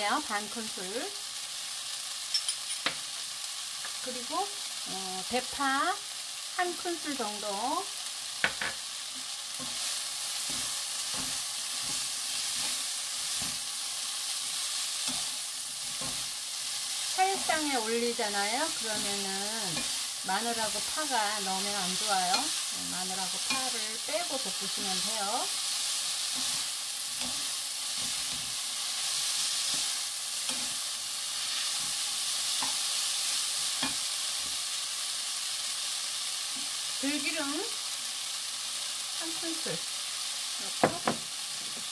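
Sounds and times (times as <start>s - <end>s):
food sizzling in a pan: 0.0s - 41.9s
spoon tapping on a pan: 8.4s - 8.8s.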